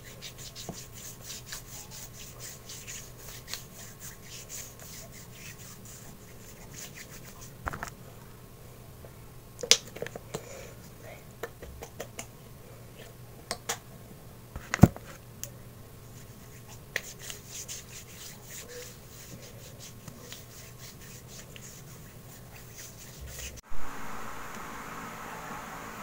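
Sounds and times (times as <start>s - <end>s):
hands rubbing lotion on skin: 0.0s - 7.6s, 16.1s - 23.6s.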